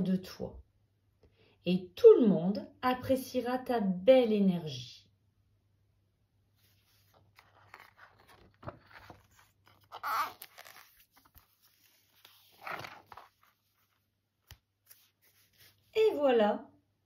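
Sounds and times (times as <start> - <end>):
book cover rustling and sliding: 6.5 - 15.9
book swishes: 6.5 - 16.0.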